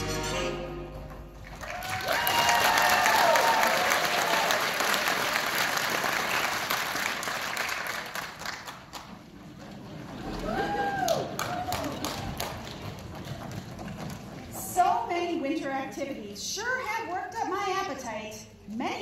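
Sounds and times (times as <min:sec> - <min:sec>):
audience applauding: 0:01.4 - 0:14.5
voices cheering: 0:01.6 - 0:05.5, 0:10.2 - 0:12.8.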